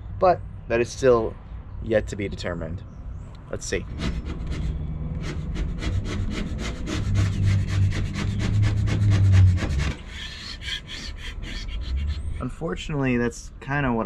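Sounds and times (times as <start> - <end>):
paint scraper rasping on hull: 3.9 - 12.3.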